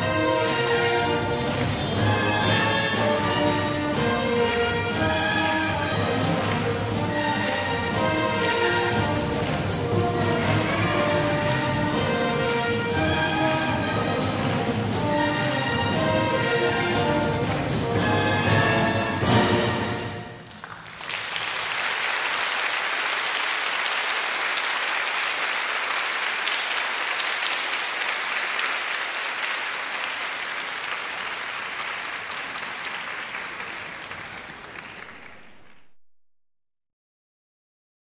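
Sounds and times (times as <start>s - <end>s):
audience applauding: 4.9s - 7.5s, 8.2s - 12.4s, 20.0s - 36.0s.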